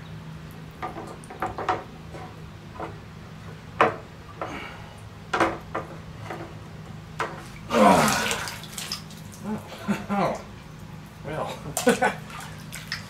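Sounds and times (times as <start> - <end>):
light splashes: 7.4 - 13.0.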